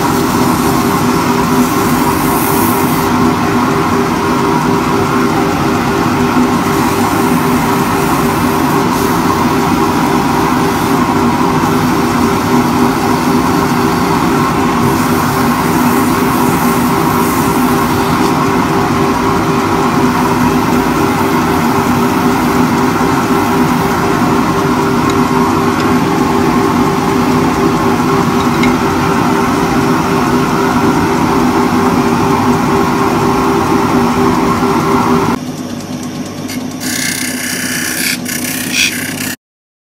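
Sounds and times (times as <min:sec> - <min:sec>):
hand sanding spinning wood: 0:00.0 - 0:35.4, 0:36.4 - 0:39.4
motor hum: 0:03.2 - 0:39.4
wood lathe motor hum: 0:36.5 - 0:39.4.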